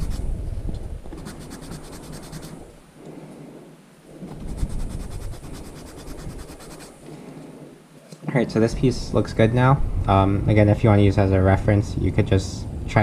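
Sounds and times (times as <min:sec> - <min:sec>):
metal file rasping on plastic: 0:04.3 - 0:07.0.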